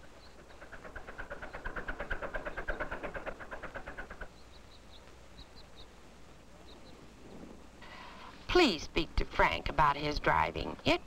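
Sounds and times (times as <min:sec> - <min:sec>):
faint bird chirps: 0:00.0 - 0:01.7, 0:04.2 - 0:08.3.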